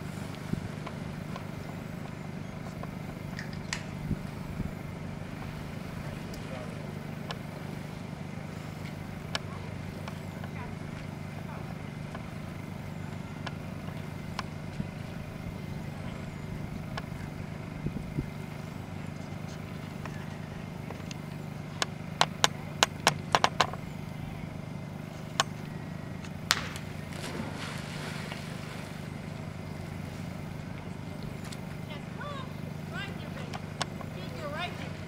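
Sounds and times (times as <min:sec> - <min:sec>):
steady low hum: 0:00.0 - 0:35.0
dog splashing into water: 0:26.5 - 0:29.0.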